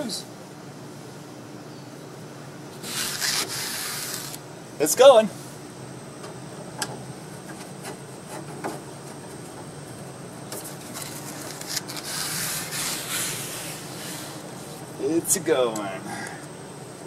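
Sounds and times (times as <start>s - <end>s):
fabric board rustling and scraping: 10.6s - 14.8s.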